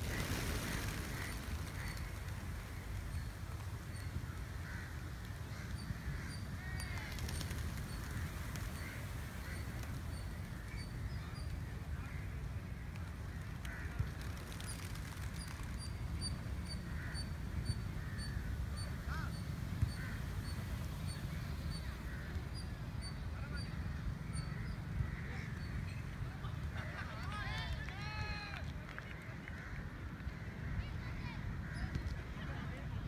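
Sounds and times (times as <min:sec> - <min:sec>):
birds cawing: 0:00.1 - 0:03.0, 0:04.6 - 0:10.9, 0:16.9 - 0:20.6.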